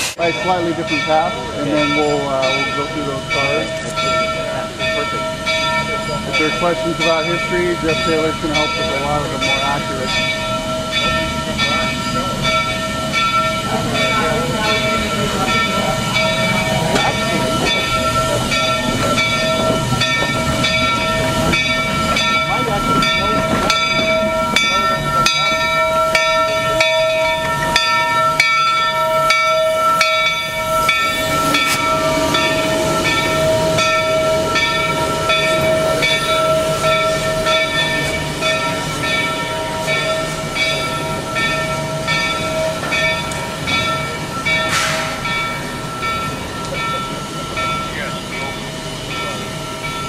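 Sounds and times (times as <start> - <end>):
steam locomotive running: 0.0 - 50.0
high whine: 23.1 - 40.7.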